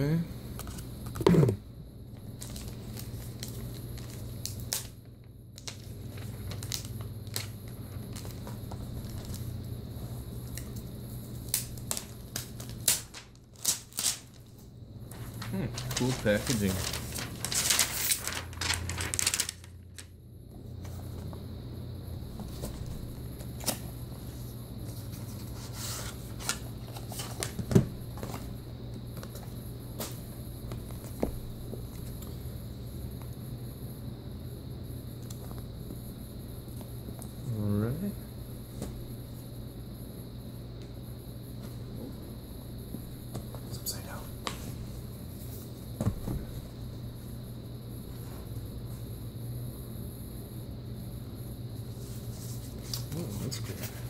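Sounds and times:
low steady hum: 0.0s - 54.0s
cardboard packaging rustling: 5.6s - 9.5s, 15.1s - 20.0s
plastic film crinkling: 5.6s - 9.5s, 11.5s - 14.5s, 15.1s - 20.1s.

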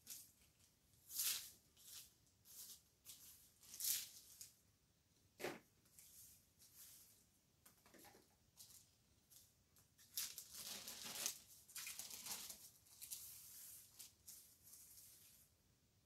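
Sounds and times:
plastic sheet rustling: 10.0s - 15.5s.

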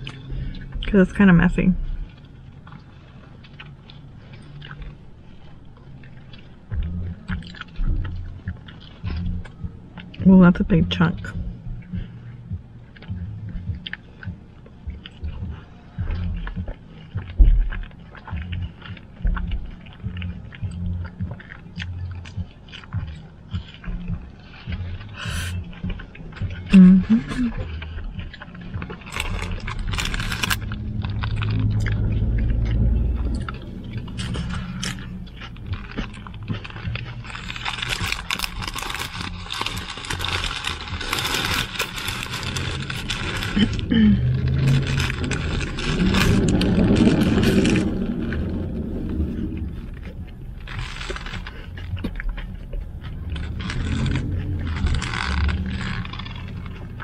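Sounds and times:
close-up chewing: 0.0s - 57.0s
low rumble: 0.0s - 57.0s
paper wrapper crinkling: 29.1s - 31.6s, 34.1s - 48.5s, 49.3s - 52.5s, 53.1s - 57.0s.

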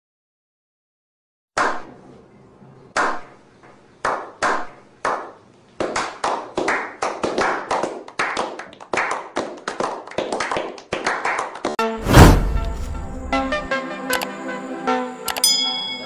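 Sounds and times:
people clapping: 4.0s - 11.8s.

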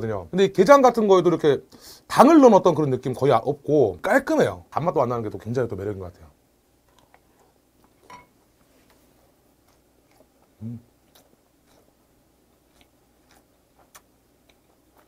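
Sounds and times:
person chewing: 6.9s - 8.1s, 8.9s - 15.0s.

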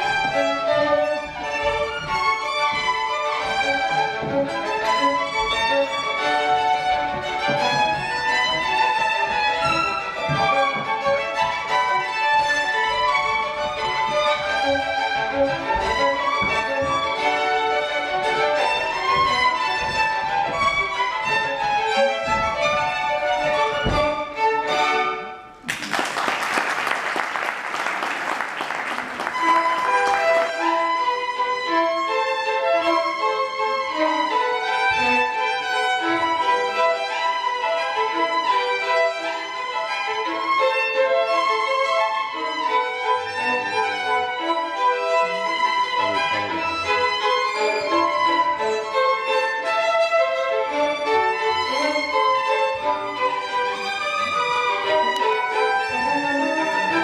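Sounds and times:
violins playing a tango duet: 0.0s - 25.7s, 27.3s - 57.0s
applause: 25.6s - 30.6s.

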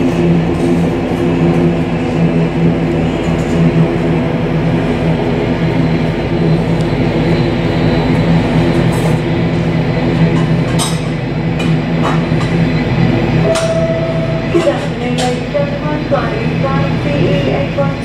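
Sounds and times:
turboprop engines droning: 0.0s - 18.0s.

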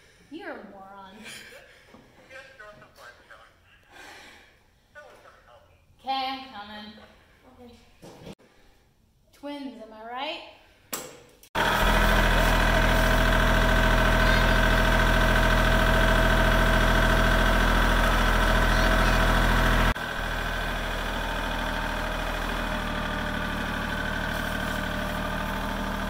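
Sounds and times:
diesel tractor engine idling: 11.6s - 26.0s.

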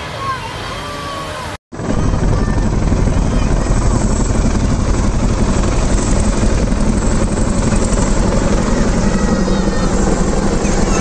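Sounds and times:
helicopter rotor chop: 1.7s - 11.0s
turbine drone: 1.8s - 11.0s.

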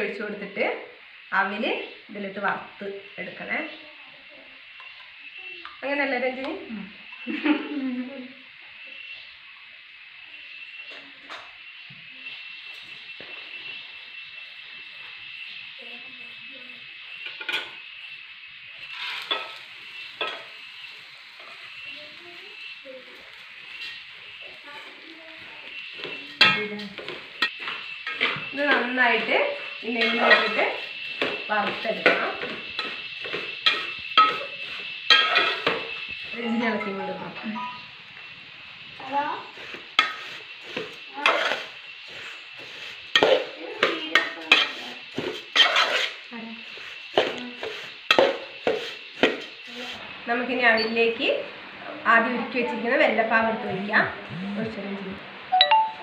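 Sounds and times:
faint sizzle: 0.0s - 56.0s
spoon scraping metal pan: 18.8s - 20.5s, 26.0s - 36.0s, 40.0s - 46.2s, 47.1s - 49.6s.

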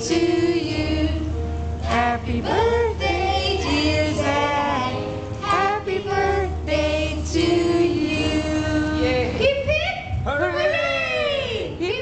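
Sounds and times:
women and children singing: 0.0s - 9.8s.

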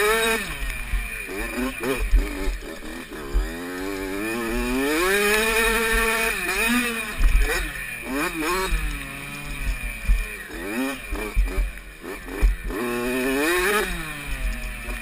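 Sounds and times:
dirt bike engine revving: 0.0s - 15.0s.

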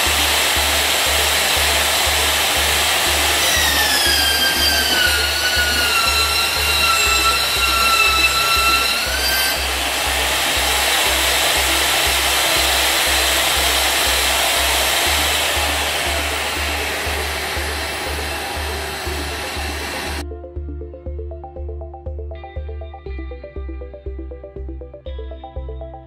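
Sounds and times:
pipe welding machine running: 0.0s - 20.2s
background music with steady beat: 0.0s - 26.0s.

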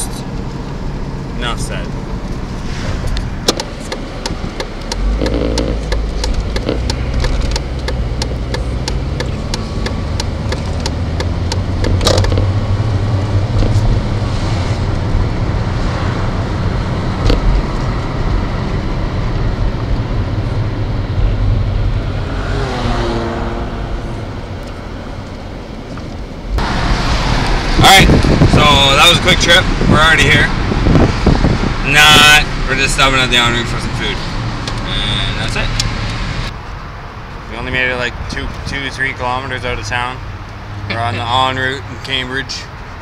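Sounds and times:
engine and road rumble: 0.0s - 43.0s
sharp clicks: 3.1s - 12.5s
quick regular ticks: 3.9s - 12.4s.

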